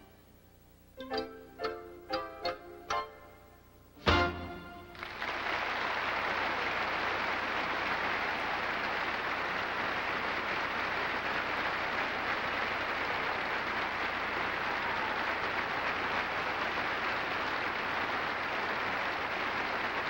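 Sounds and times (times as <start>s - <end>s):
audience applauding: 4.9s - 20.0s.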